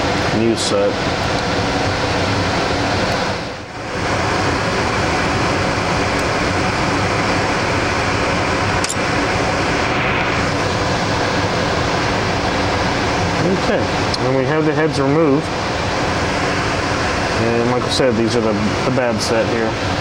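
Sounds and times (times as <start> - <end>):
filtered air rushing: 0.0 - 20.0.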